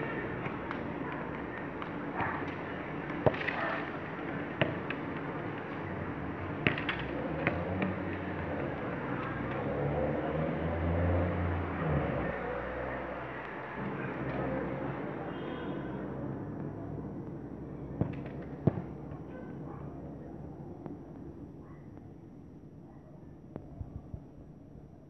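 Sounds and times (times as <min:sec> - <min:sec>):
steady background noise: 0:00.0 - 0:25.0.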